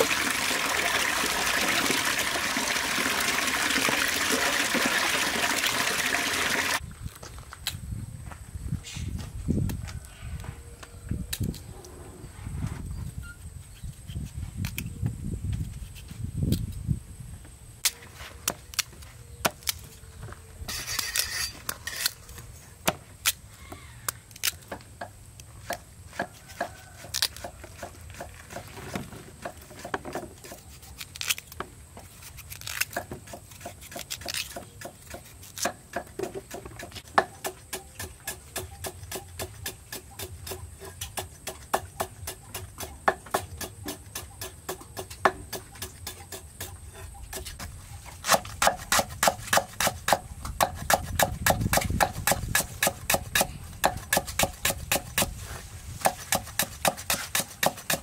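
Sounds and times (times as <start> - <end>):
knife cutting potatoes: 32.3 - 55.4
cleaver chopping on wooden block: 32.9 - 47.6, 48.2 - 55.4, 56.0 - 58.0.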